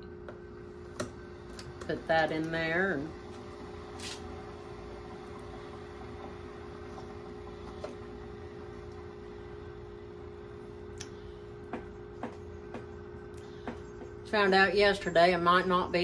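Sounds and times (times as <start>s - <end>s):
low appliance hum: 0.0s - 16.0s.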